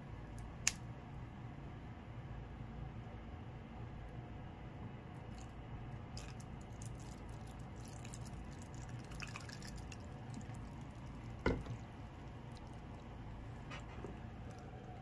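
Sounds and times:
liquid trickling into a bowl: 5.2 - 13.5.

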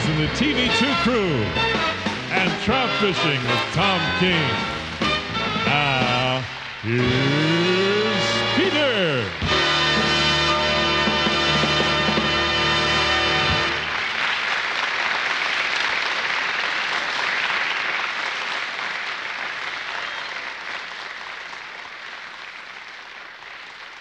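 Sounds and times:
music: 0.0 - 14.1
audience applause: 0.0 - 24.0.

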